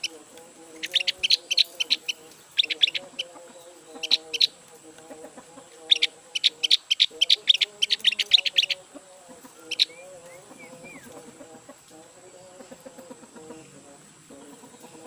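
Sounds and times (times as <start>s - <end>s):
bird chattering calls: 0.0s - 11.8s.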